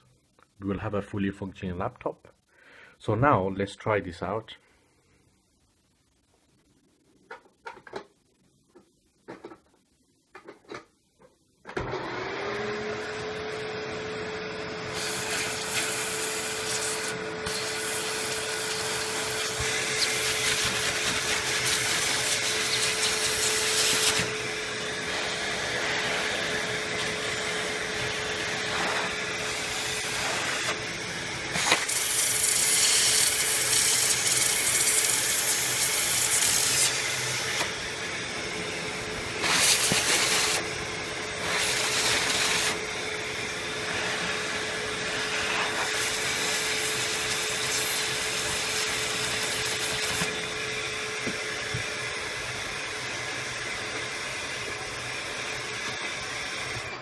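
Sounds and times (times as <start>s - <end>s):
vacuum cleaner running: 11.7s - 57.0s.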